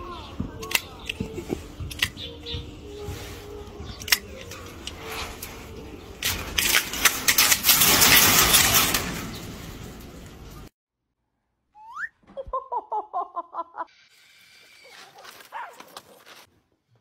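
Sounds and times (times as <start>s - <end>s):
chain-link fence rattling: 4.4s - 10.7s.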